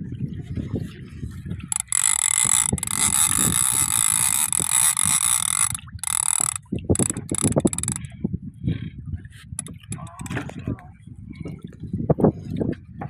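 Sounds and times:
fishing reel drag buzzing: 1.7s - 8.1s, 9.6s - 10.4s.

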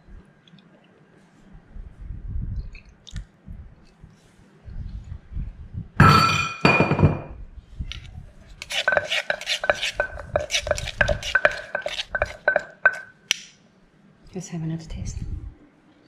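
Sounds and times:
metal spoon stirring in mortar: 8.5s - 13.2s
wooden pestle pounding in mortar: 8.6s - 13.1s.

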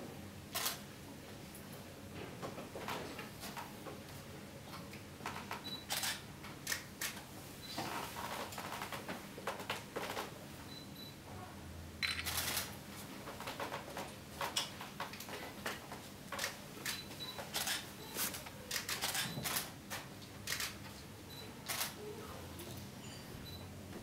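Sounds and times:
camera shutters clicking: 5.9s - 7.2s, 18.7s - 19.7s, 20.5s - 20.8s, 21.7s - 22.0s.

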